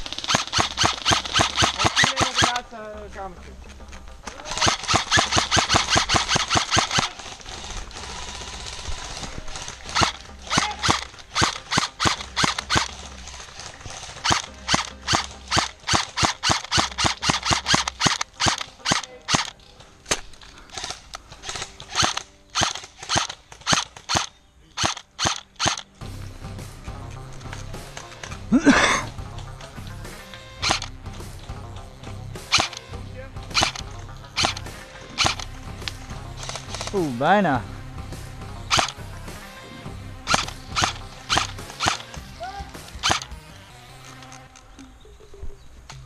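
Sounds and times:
airsoft gun firing: 0.0s - 2.6s, 4.3s - 25.9s, 30.1s - 31.0s, 32.4s - 37.1s, 38.7s - 43.4s.

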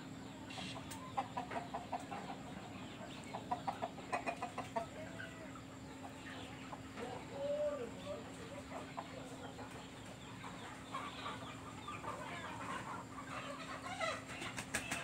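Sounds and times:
steady low hum: 0.0s - 14.6s
chickens clucking: 0.0s - 15.0s
chicken drawn-out call: 0.5s - 2.4s.

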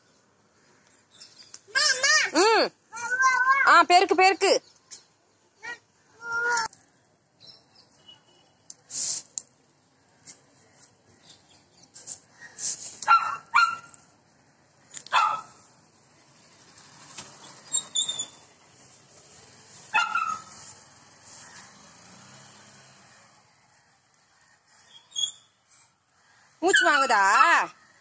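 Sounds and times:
broom sweeping concrete: 8.8s - 9.4s, 11.9s - 13.1s, 18.7s - 21.9s
dog barking: 13.1s - 13.9s, 15.1s - 15.6s, 19.9s - 20.5s.

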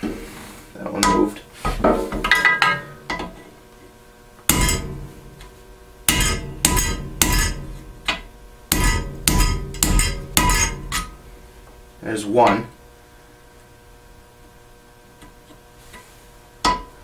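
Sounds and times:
hammer striking metal punch: 4.5s - 11.2s, 16.6s - 17.0s.

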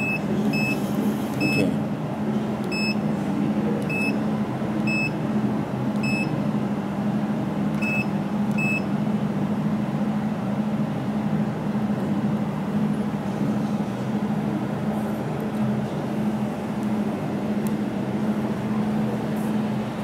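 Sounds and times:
machine running hum: 0.0s - 20.0s
short high key beeps: 6.0s - 6.3s, 7.8s - 8.9s.

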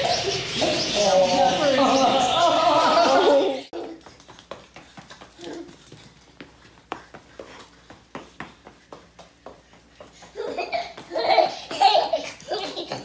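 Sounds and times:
loud laughter: 1.6s - 3.7s
footsteps on concrete: 3.7s - 13.0s.

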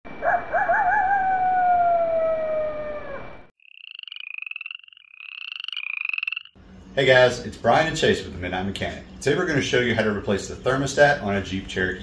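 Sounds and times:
frogs trilling croaks: 3.6s - 6.6s.

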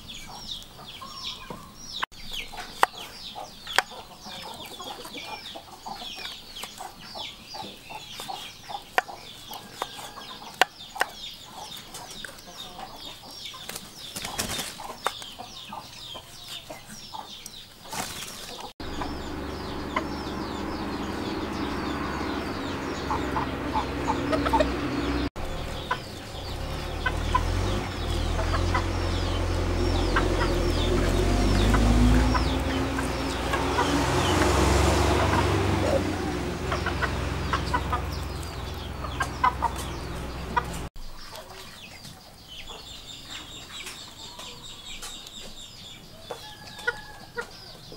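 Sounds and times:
birds chirping: 0.0s - 47.9s
chickens clucking: 0.0s - 47.9s
steady low rumble: 18.8s - 34.4s, 35.2s - 40.9s.

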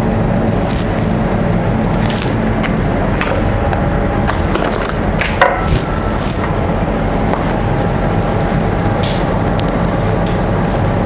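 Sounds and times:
ventilation hum: 0.0s - 11.0s.

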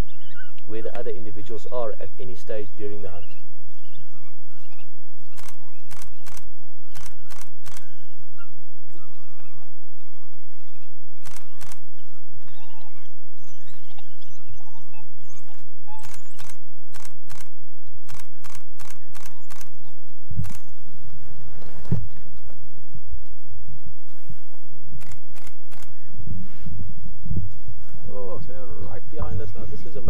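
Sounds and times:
wild dogs yelping: 0.0s - 1.1s, 2.5s - 17.5s, 18.1s - 20.8s
steady low hum: 0.0s - 30.0s
sharp clicks: 5.3s - 7.9s, 11.2s - 12.6s, 15.5s - 19.8s, 20.4s - 20.7s, 25.0s - 26.0s.

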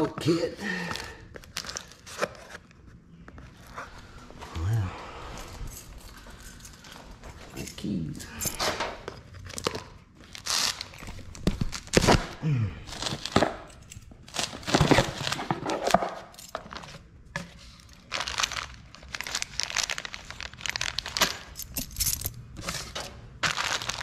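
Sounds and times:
plastic bags crinkling: 0.6s - 2.1s, 9.4s - 17.0s, 17.6s - 21.9s, 22.6s - 24.0s.

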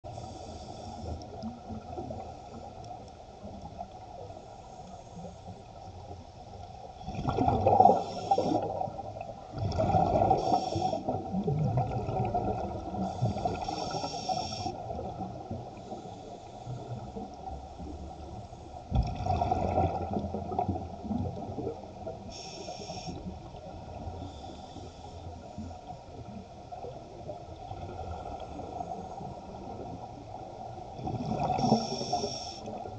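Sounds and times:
underwater hiss: 0.1s - 2.6s, 7.1s - 11.3s, 12.8s - 18.3s, 22.2s - 25.8s, 31.2s - 32.9s
underwater bubbles gurgling: 0.1s - 32.9s.

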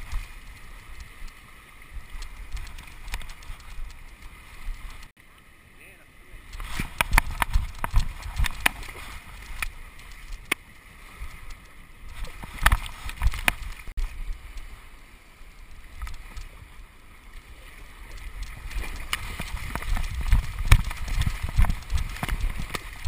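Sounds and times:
seawater sloshing and splashing: 6.4s - 14.8s, 15.6s - 23.0s.

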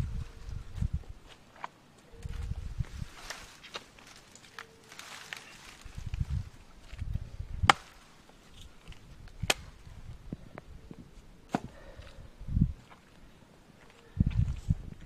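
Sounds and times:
blade chopping into tree trunk: 7.6s - 8.0s, 11.5s - 11.7s.

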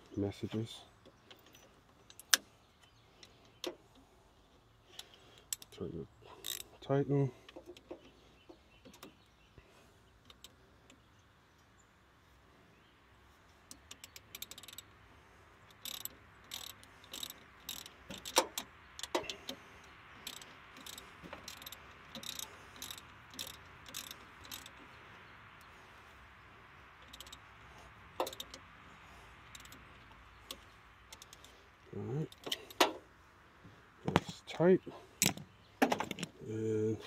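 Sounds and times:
ratchet wrench clicking: 6.4s - 6.7s, 13.7s - 14.9s, 15.7s - 19.6s, 20.2s - 24.8s, 27.0s - 27.4s, 28.2s - 28.7s, 29.5s - 31.5s
wrench clacking on metal: 6.4s - 6.8s, 13.7s - 14.8s, 15.7s - 19.6s, 20.2s - 24.8s, 27.0s - 27.4s, 28.2s - 28.6s.

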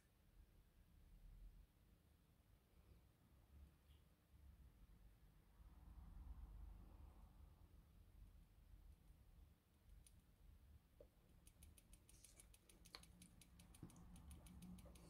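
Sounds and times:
faint fast clicks: 11.0s - 15.0s.

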